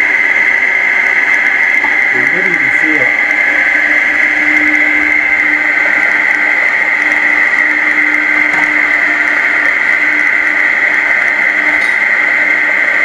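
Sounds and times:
food processor motor whining: 0.0 - 13.0.

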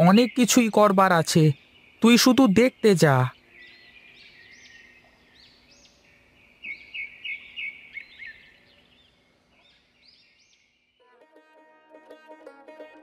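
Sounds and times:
birds chirping: 0.0 - 11.2.

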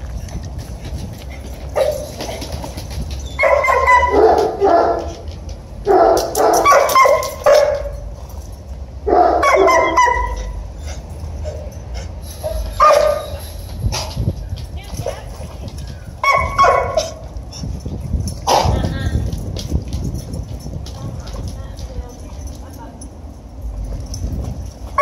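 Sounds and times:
dogs barking: 1.7 - 2.4, 3.3 - 5.2, 5.8 - 8.0, 9.0 - 14.1, 16.2 - 17.3.

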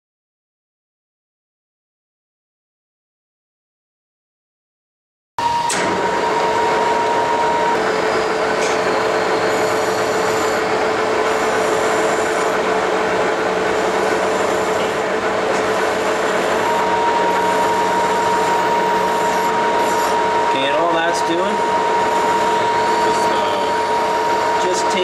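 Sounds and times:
metal lathe humming: 5.4 - 25.0
file scraping on spinning shaft: 6.6 - 25.0.

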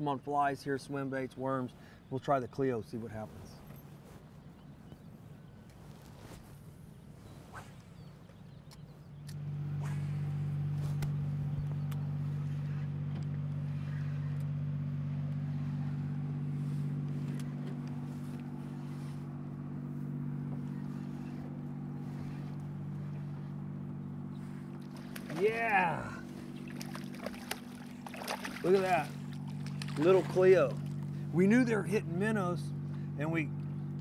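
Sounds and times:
outboard motor idling: 8.2 - 34.0.

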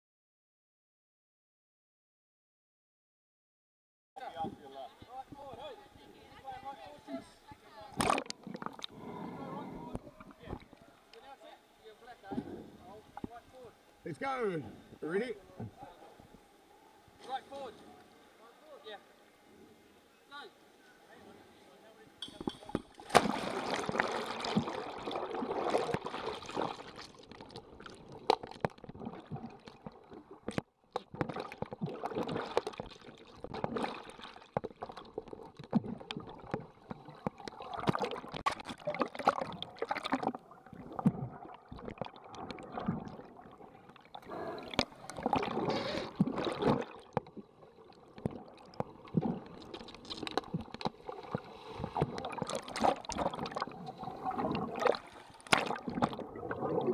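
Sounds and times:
water sloshing and gurgling: 7.8 - 10.8, 22.4 - 56.9
sharp underwater clicks and knocks: 28.2 - 40.4, 46.2 - 47.4, 48.2 - 53.6, 54.8 - 56.2.

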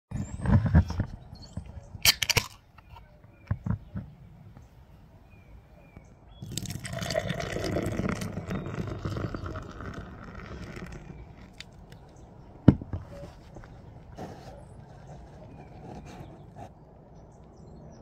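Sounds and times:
hookah water bubbling: 6.4 - 12.1.

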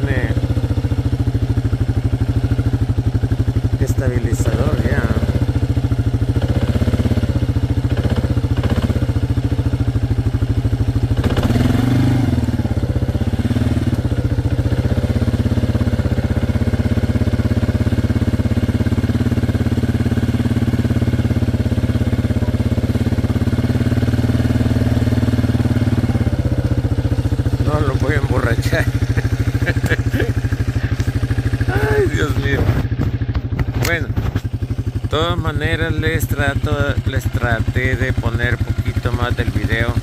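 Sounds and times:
small vehicle engine running: 0.0 - 40.0
vehicle bump: 32.4 - 34.8.

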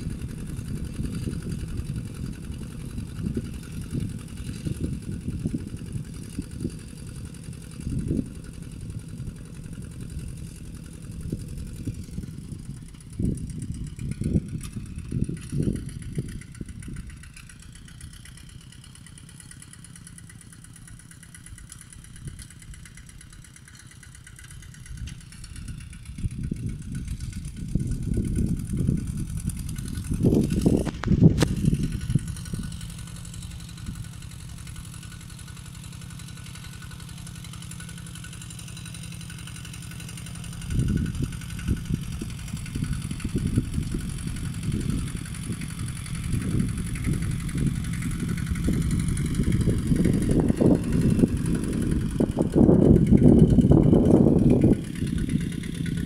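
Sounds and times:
walk-behind tractor diesel engine: 0.0 - 56.0.

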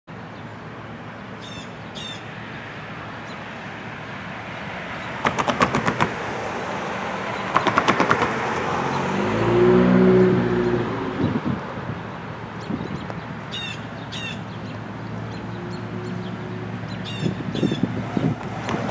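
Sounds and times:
bird chirping: 0.2 - 2.3, 12.1 - 18.4.

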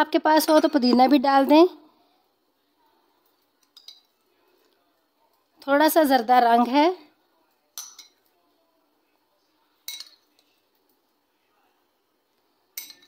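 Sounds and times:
metal spoon clinking a bowl: 3.3 - 4.2, 7.7 - 8.4, 9.8 - 10.6, 12.7 - 13.0.

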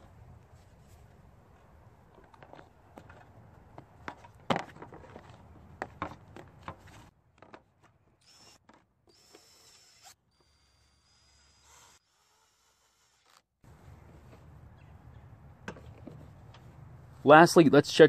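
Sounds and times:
cordless drill whirring: 8.2 - 13.5.

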